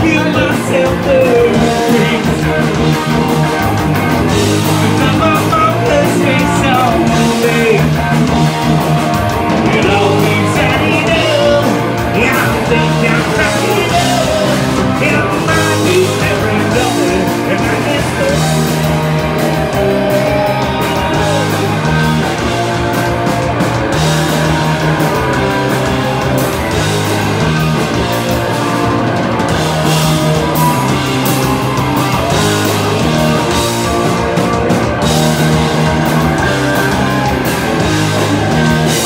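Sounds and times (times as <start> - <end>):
man singing into a microphone: 0.0 - 2.6, 4.8 - 8.0, 9.7 - 18.6
electric guitar: 0.0 - 39.0
live rock band playing: 0.0 - 39.0.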